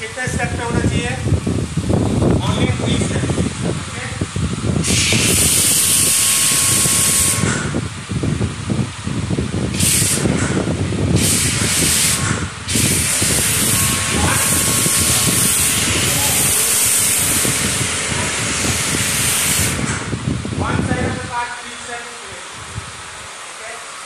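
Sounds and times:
pressure washer foam spraying: 4.7 - 7.9, 9.7 - 20.2.

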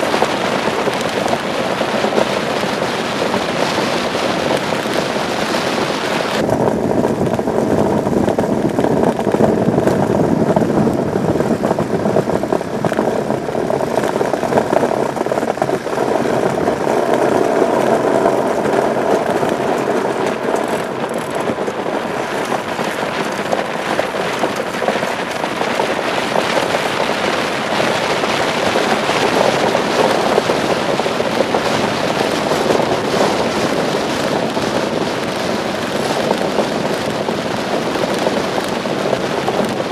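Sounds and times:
steel runner rumbling over ice: 0.0 - 39.9.

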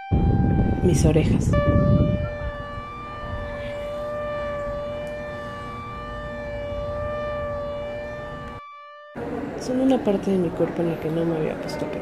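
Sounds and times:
low noisy rumble: 0.0 - 8.6
steady held tone: 0.0 - 10.6.

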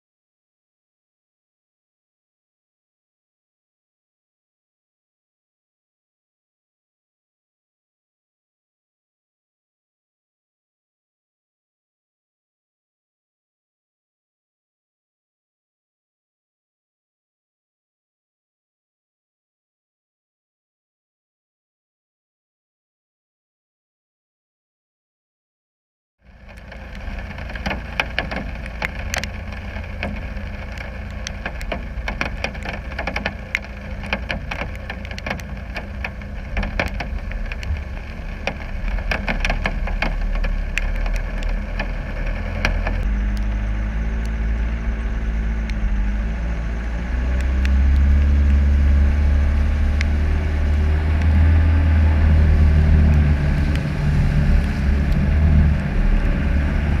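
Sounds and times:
sharp knocks and rattles: 26.3 - 43.1
water splashing: 26.3 - 43.2, 47.4 - 57.0
diesel engine running: 26.3 - 57.0.

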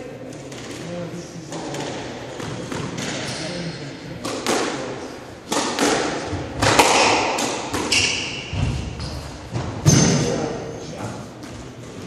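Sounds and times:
squash ball cracks: 4.2 - 8.4.

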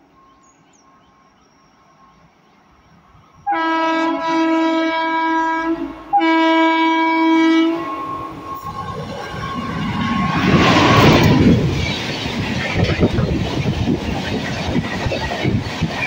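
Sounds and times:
train rumbling: 0.0 - 16.0
locomotive horn blasts: 3.4 - 8.7.

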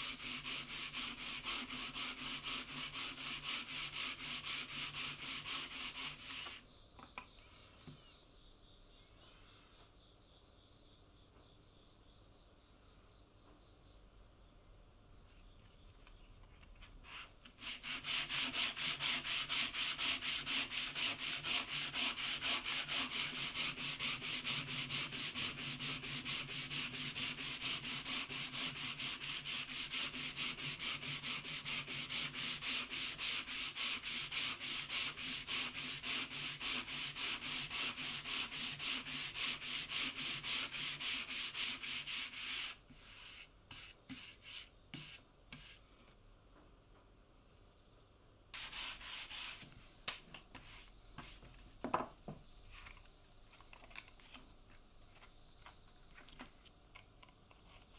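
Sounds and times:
sandpaper rubbing on wood: 0.0 - 6.6, 17.1 - 45.8, 48.6 - 49.7.

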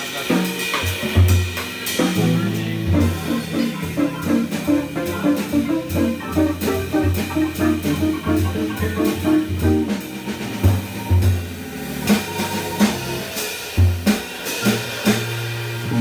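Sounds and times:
drum kit: 0.0 - 16.0
electric guitar melody: 2.2 - 13.1
organ bass notes: 2.2 - 13.4.

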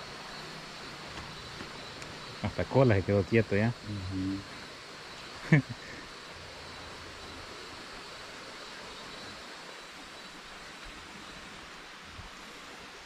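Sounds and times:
river rushing: 0.0 - 13.0.

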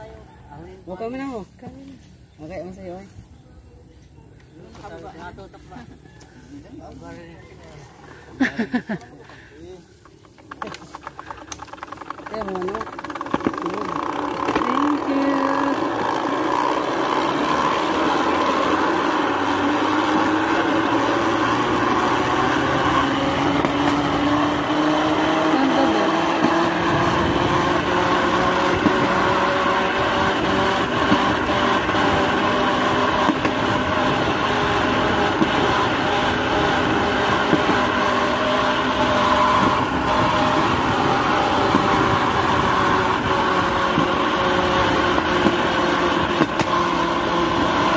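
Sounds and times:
wheels clicking on rails: 8.7 - 47.9
rail trolley engine running: 10.8 - 32.4.

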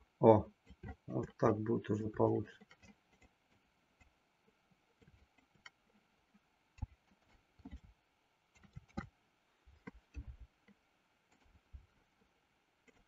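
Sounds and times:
computer mouse clicks: 8.5 - 9.1.

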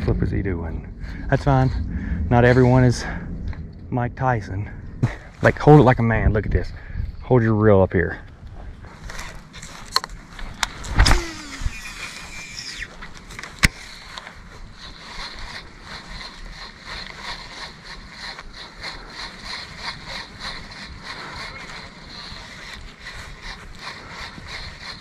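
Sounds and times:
fishing rod swishing: 10.6 - 13.0
reel spool whirring: 11.0 - 12.9.

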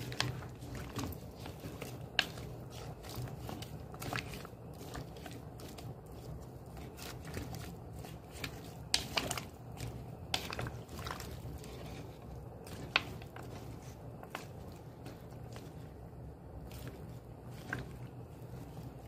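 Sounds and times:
spoon stirring a pot: 0.0 - 19.0.

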